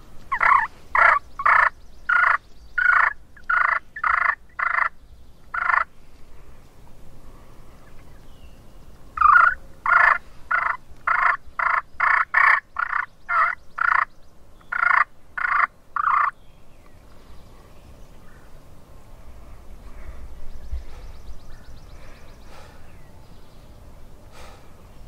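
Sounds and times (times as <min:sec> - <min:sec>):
wild turkey calling: 0:00.3 - 0:05.9, 0:09.2 - 0:16.4.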